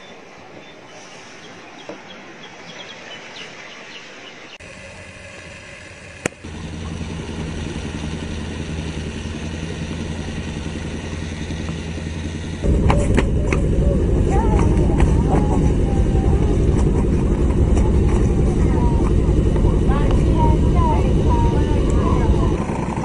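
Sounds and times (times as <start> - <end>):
boat engine idling: 4.6 - 23.0.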